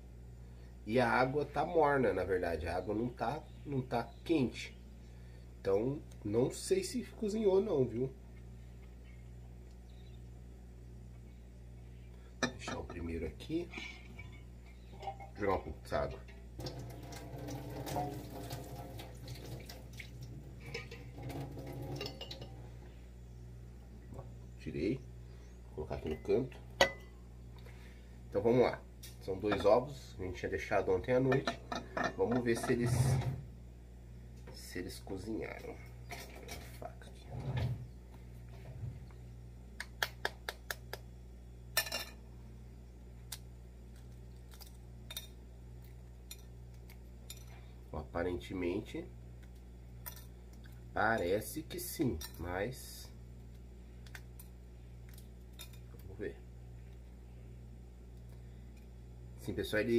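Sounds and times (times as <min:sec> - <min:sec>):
low steady hum: 0:00.0 - 0:59.9
eggshell crackling: 0:16.2 - 0:22.9
water dripping: 0:16.3 - 0:22.5
water splashing into sink: 0:16.6 - 0:22.5.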